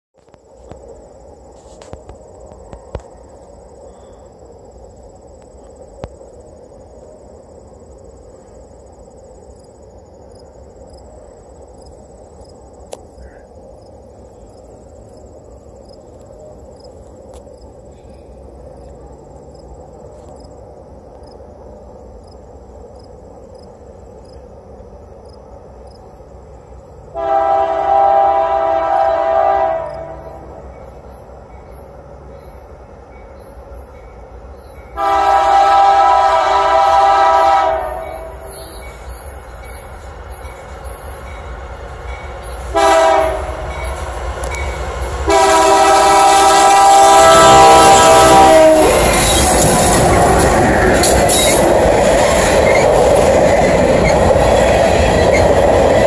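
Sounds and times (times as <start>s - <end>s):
faint insects: 0.2s - 56.0s
locomotive horn chord: 27.1s - 30.6s, 35.0s - 38.8s, 42.7s - 43.8s, 45.3s - 49.1s.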